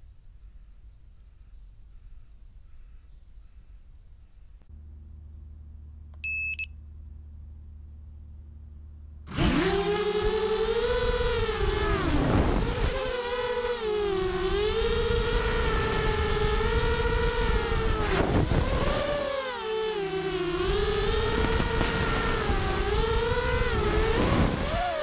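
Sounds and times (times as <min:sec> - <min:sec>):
quadcopter motors whining: 0:09.3 - 0:25.0.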